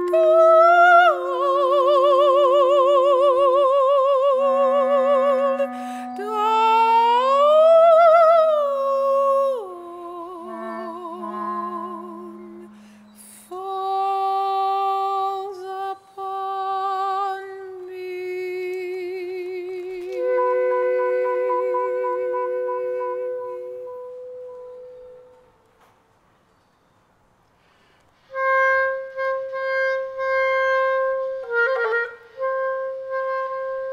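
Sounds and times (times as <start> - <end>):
soprano voice singing: 0.0 - 24.5
clarinet sustaining low notes: 0.0 - 25.8, 28.3 - 33.9.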